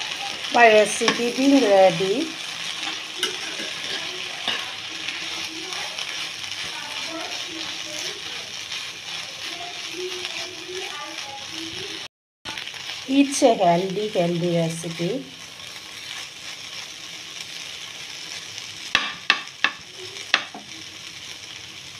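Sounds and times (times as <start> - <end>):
food sizzling in frying pan: 0.0 - 21.9
metal spatula scraping pan: 2.6 - 6.8.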